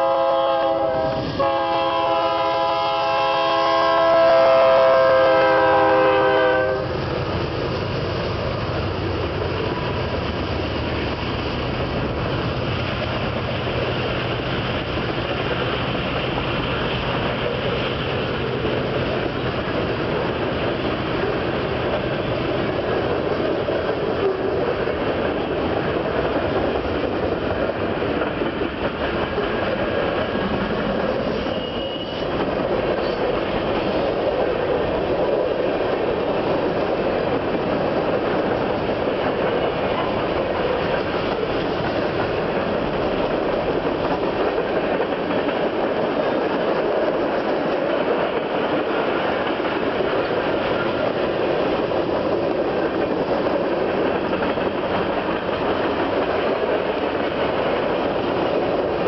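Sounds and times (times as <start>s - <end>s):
train horn: 0.0s - 6.9s
train wheel squeal: 29.3s - 34.0s.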